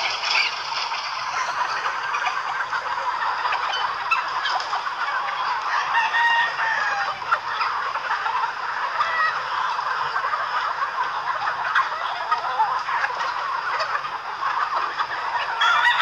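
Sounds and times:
chickens clucking: 0:00.0 - 0:16.0
roosters crowing: 0:01.2 - 0:14.0, 0:14.6 - 0:16.0.

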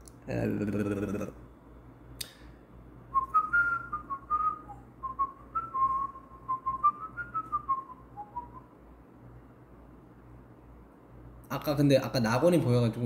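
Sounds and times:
man whistling a tune: 0:03.1 - 0:08.7.

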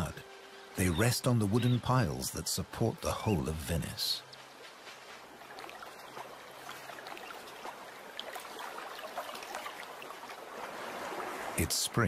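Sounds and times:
water lapping and splashing: 0:02.8 - 0:12.0.

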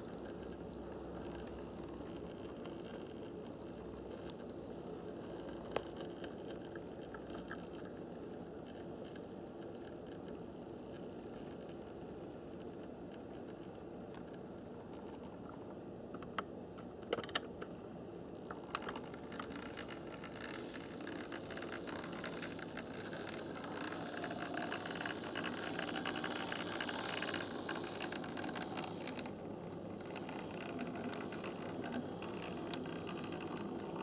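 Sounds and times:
model train motor whirring: 0:18.7 - 0:34.0.

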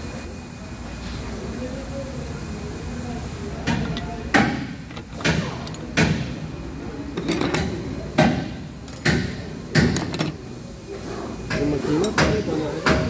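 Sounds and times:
metal parts clanking: 0:03.7 - 0:06.0, 0:07.1 - 0:07.9, 0:08.8 - 0:09.2, 0:09.8 - 0:10.5.

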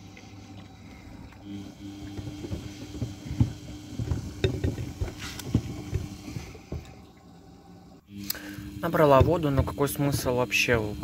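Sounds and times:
water sloshing: 0:00.0 - 0:07.7
washing machine motor hum: 0:00.0 - 0:11.0
shoes thumping in washer drum: 0:01.6 - 0:07.1, 0:09.0 - 0:10.4.

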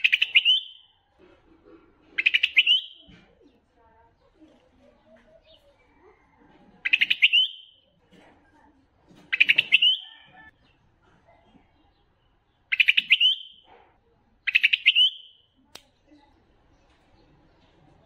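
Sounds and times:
bird singing: 0:00.0 - 0:01.1, 0:02.2 - 0:03.2, 0:06.8 - 0:07.9, 0:09.3 - 0:10.8, 0:11.8 - 0:13.7, 0:14.4 - 0:15.5.

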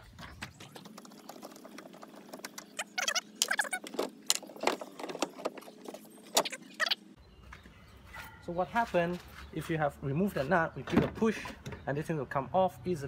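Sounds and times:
squeaky chirps: 0:02.5 - 0:07.2.

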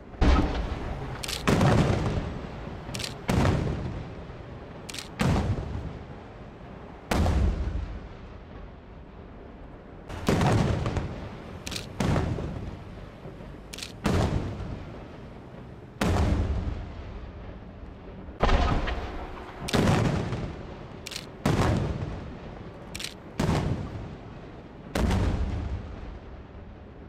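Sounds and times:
firework shells booming: 0:00.0 - 0:04.1, 0:10.1 - 0:15.1, 0:18.4 - 0:22.3
sharp firework crack: 0:00.2 - 0:04.0, 0:10.1 - 0:12.7, 0:18.4 - 0:22.3.

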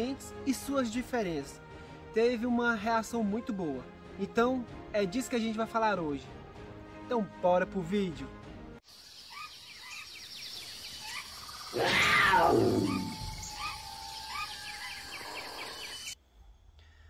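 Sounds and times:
birds chirping: 0:08.9 - 0:16.2
big cat roaring: 0:11.7 - 0:13.9.

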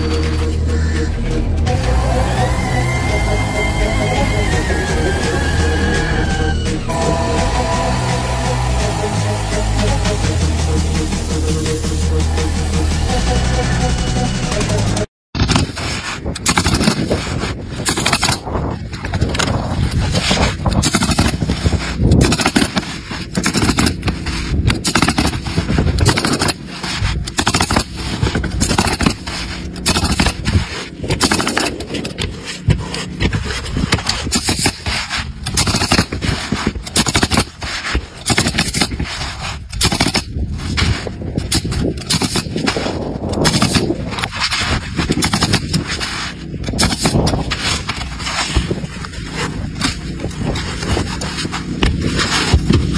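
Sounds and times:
pneumatic nailer shots: 0:15.4 - 0:18.6, 0:20.7 - 0:33.2, 0:33.9 - 0:48.4
shingles scraping: 0:15.4 - 0:52.9.

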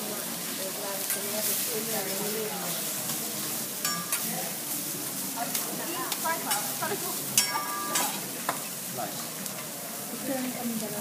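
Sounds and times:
food sizzling on griddle: 0:00.0 - 0:11.0
metal spatula scraping hotplate: 0:00.4 - 0:08.6.

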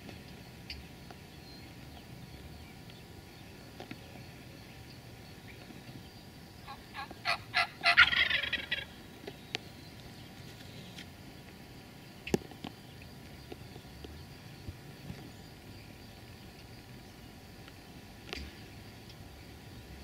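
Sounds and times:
turkey gobbling: 0:06.7 - 0:08.9.

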